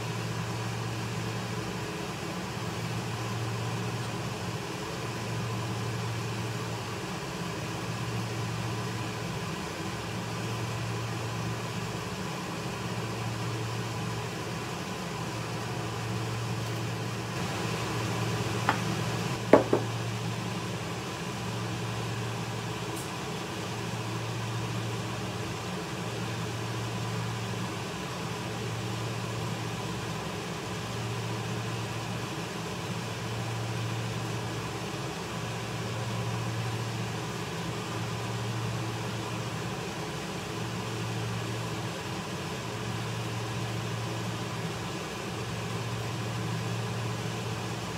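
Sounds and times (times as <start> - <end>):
appliance electrical hum: 0.0 - 47.9
sharp knocks: 19.6 - 19.9.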